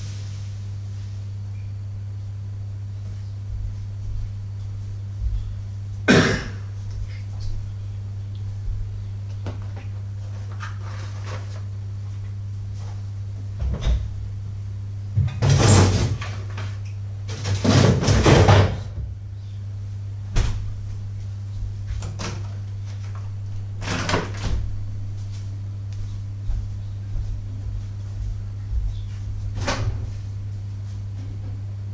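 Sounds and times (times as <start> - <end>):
steady low hum: 0.0 - 31.9
rustling and clatter in fridge: 8.6 - 14.2, 15.1 - 19.2, 20.2 - 31.9
fridge door shutting: 23.8 - 24.8, 29.5 - 30.2.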